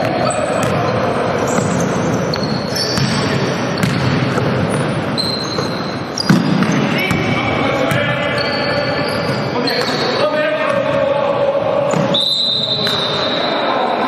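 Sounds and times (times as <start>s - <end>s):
basketball bouncing: 0.0s - 8.2s
sneakers squeaking: 0.0s - 11.0s, 11.8s - 13.8s.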